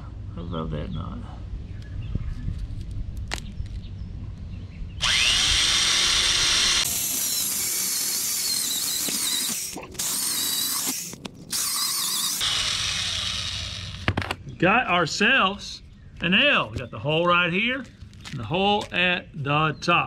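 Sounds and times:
electric drill boring into log: 5.0 - 14.1.

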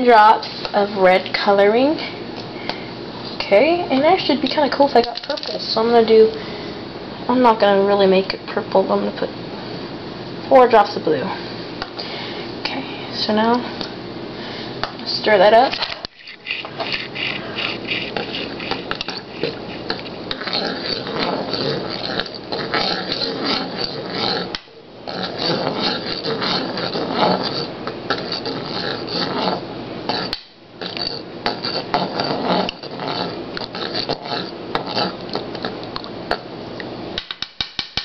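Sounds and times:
spoon stirring in saucepan: 15.7 - 24.4.

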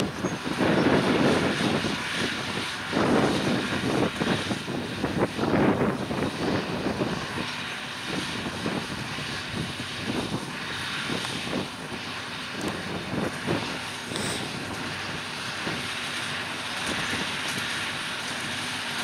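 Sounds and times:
tractor diesel engine under load: 0.0 - 19.0.

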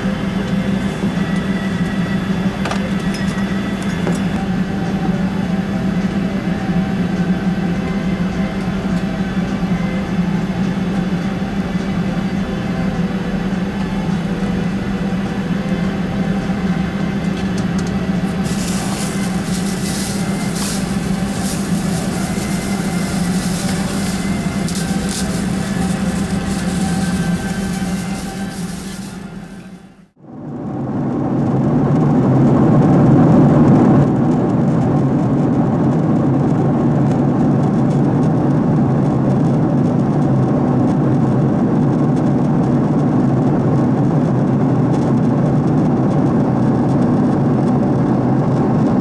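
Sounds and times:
aircraft cabin drone: 0.0 - 49.0
crackling hiss: 18.2 - 29.9.

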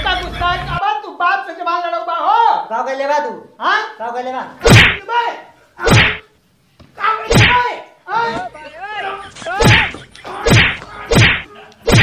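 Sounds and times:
open-hand whacks on back: 4.6 - 5.0, 5.9 - 6.2, 7.3 - 7.6, 9.6 - 12.0.

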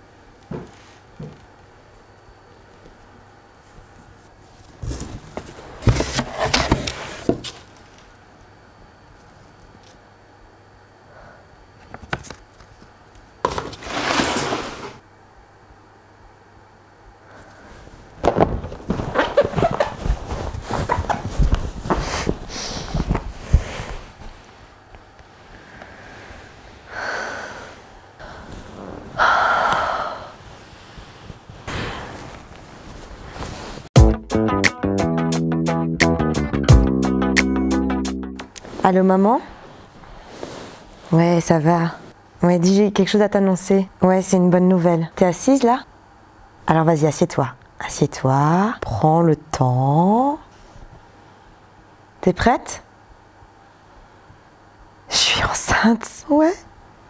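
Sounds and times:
rummaging in cardboard box: 4.6 - 7.7, 13.5 - 15.0, 18.4 - 23.4
clothing rustling: 17.8 - 25.5, 30.4 - 33.9
woman breathing sounds: 21.9 - 24.3, 25.4 - 32.4.

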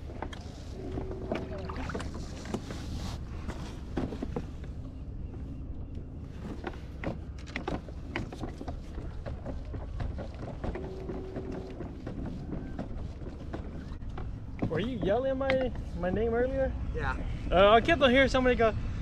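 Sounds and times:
water splashes: 0.7 - 2.8.

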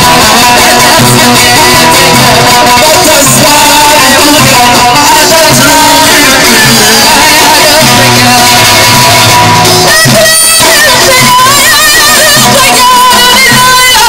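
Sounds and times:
frame drums: 0.0 - 14.0
person singing: 0.0 - 14.0
plucked lute: 0.0 - 14.0.

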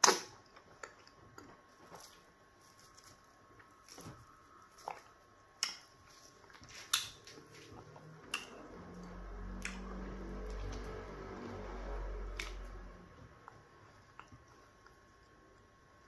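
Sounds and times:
low steady hum: 0.0 - 16.0
soft wet food handling: 0.5 - 11.1.

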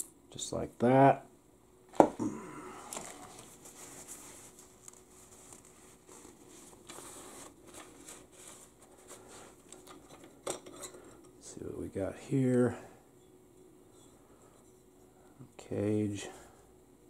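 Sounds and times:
faint steady hum: 0.0 - 17.0
metal parts clicking and scraping: 9.7 - 11.2.

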